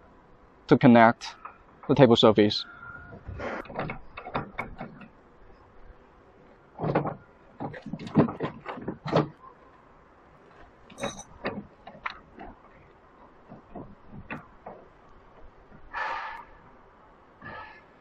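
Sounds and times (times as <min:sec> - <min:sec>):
steel parts knocking and clinking: 0:10.9 - 0:11.6.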